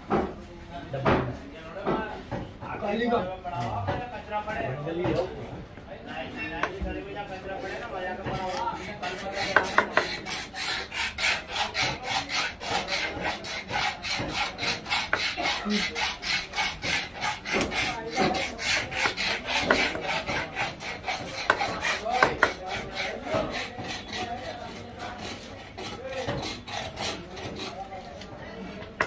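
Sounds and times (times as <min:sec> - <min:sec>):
knife sharpened on a stone: 0:08.4 - 0:28.3.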